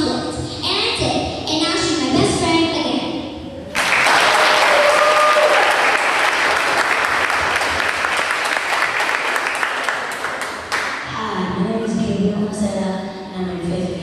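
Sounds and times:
audience applauding: 3.7 - 11.0.

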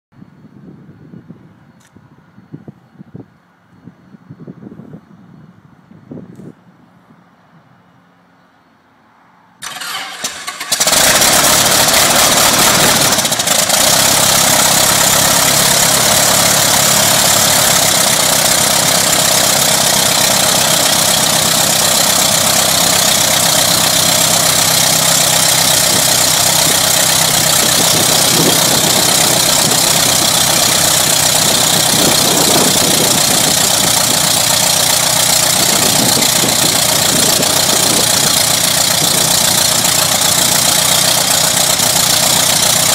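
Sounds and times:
airplane engine cranking: 9.6 - 42.9
piston engine running loudly: 9.6 - 42.9.

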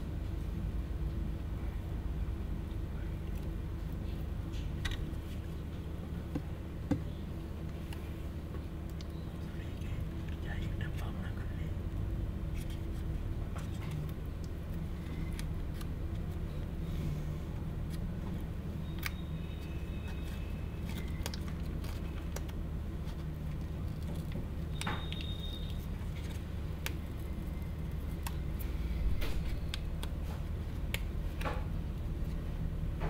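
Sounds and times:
low room hum: 0.0 - 33.0.

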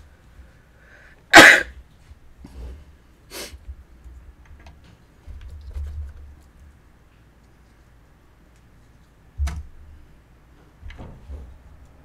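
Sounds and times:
intake of breath: 0.4 - 1.3
person sneezing: 1.3 - 1.8.

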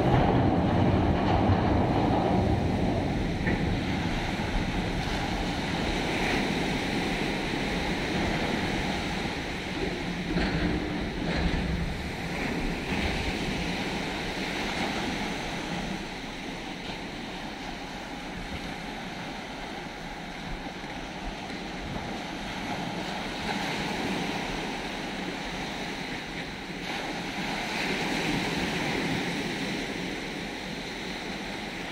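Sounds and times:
surf washing over beach: 0.0 - 31.9
wind buffeting microphone: 0.0 - 31.9.

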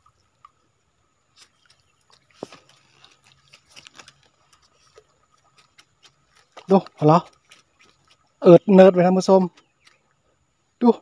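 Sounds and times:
net clicks and crackles: 1.3 - 8.5, 9.1 - 10.3.

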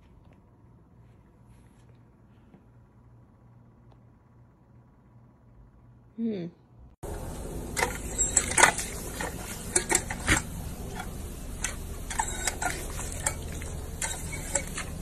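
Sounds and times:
dog lapping water: 7.7 - 15.0.

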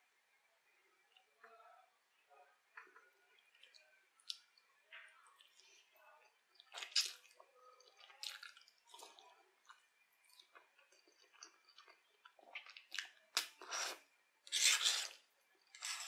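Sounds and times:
wet chewing: 6.6 - 15.2
slurping noodles: 13.6 - 15.2.

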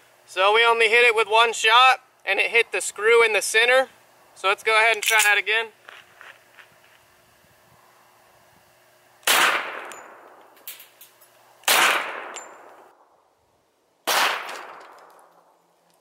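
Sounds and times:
pistol shots with echo: 9.2 - 10.4, 11.7 - 12.8, 14.0 - 15.5.

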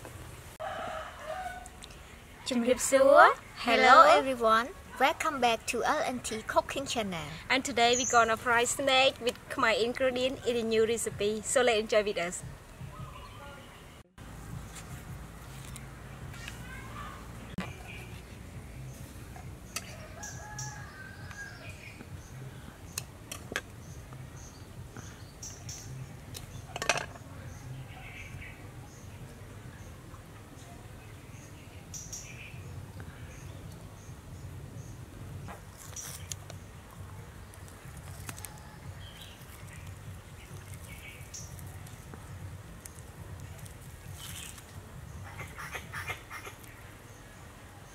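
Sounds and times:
rooster crowing: 0.6 - 1.8, 19.8 - 21.8
rustling from peeling snake skin: 37.4 - 44.8.

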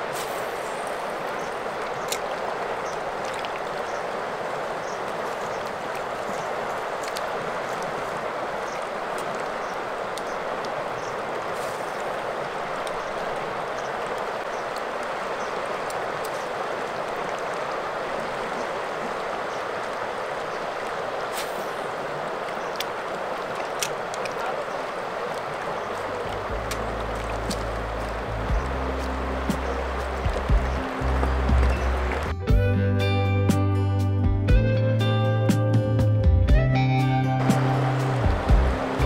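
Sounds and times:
river water rushing: 0.0 - 32.4, 36.8 - 39.0
small clicks or splashes: 0.2 - 4.0, 4.8 - 12.1, 12.7 - 17.7, 22.4 - 32.3.

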